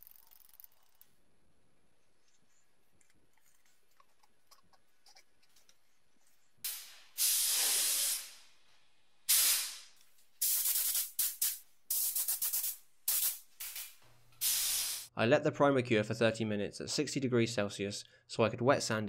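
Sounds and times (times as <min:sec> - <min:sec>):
paint spray gun hissing: 0:06.7 - 0:08.5, 0:09.3 - 0:15.1.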